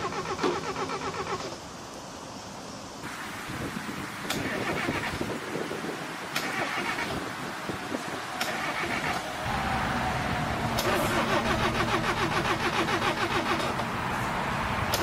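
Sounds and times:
car engine cranking: 0.0s - 1.6s, 4.3s - 5.3s, 6.3s - 7.3s, 8.4s - 14.0s.

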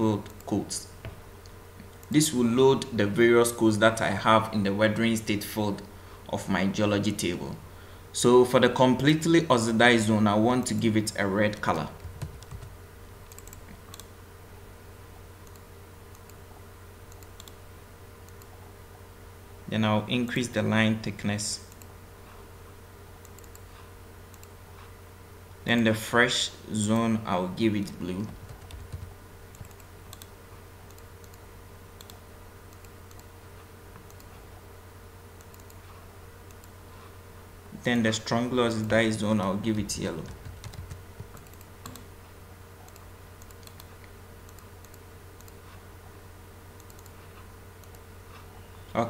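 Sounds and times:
steady low hum: 0.0s - 49.0s
keyboard and mouse clicks: 12.0s - 14.1s, 17.1s - 17.6s, 23.2s - 23.7s, 28.2s - 31.4s, 33.9s - 34.4s, 35.4s - 35.8s, 40.2s - 42.1s, 42.8s - 45.6s, 46.8s - 47.2s, 47.8s - 48.0s.

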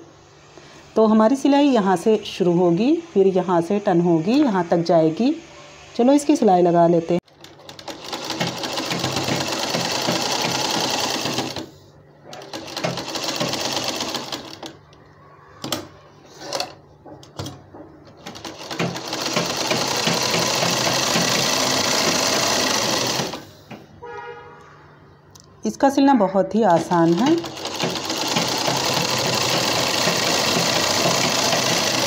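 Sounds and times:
sewing machine stitching: 7.3s - 11.7s, 12.3s - 14.8s, 18.2s - 23.5s, 26.7s - 32.0s.

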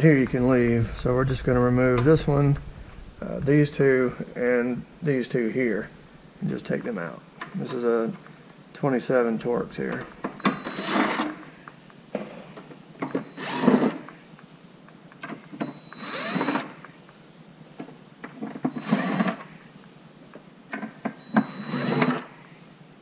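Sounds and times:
cordless drill motor spinning: 16.0s - 16.6s.

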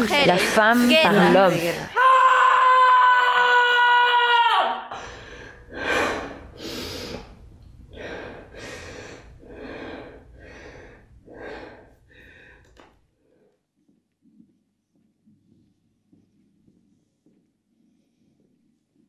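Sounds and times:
person breathing heavily: 4.9s - 13.7s.

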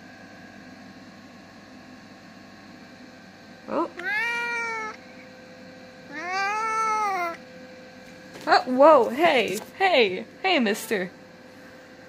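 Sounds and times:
cat chirping and meowing: 4.0s - 5.0s, 6.1s - 7.4s.

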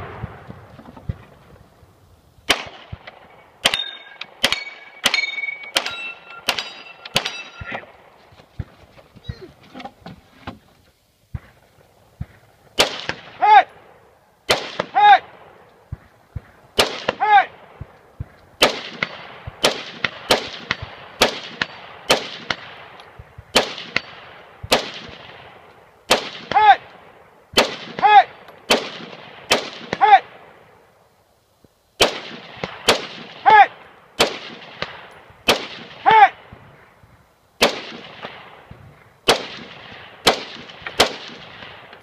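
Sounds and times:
rifle shots: 2.4s - 8.2s, 12.2s - 13.9s, 14.5s - 30.6s, 32.0s - 36.9s, 37.6s - 42.0s
metallic ring of steel target: 3.7s - 7.8s.

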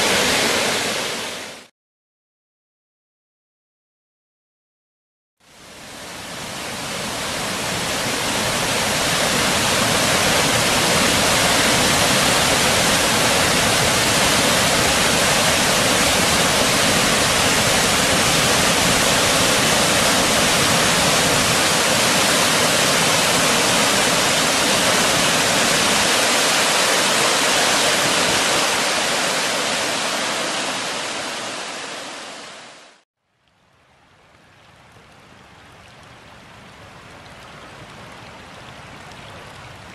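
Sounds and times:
waterfall rushing into pool: 0.0s - 1.7s, 5.4s - 33.0s
creek running over rocks: 5.5s - 39.9s.

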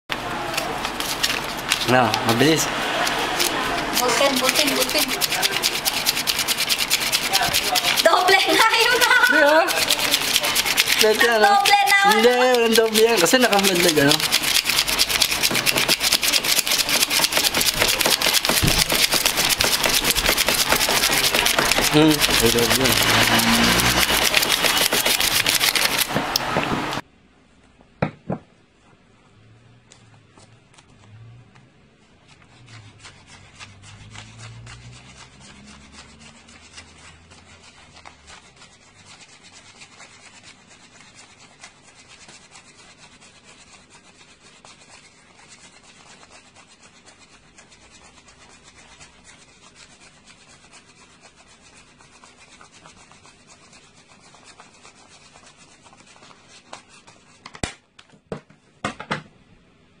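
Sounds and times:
banknotes riffling: 0.3s - 26.4s
paper stack knocking on wooden table: 17.6s - 23.1s, 28.0s - 28.5s.

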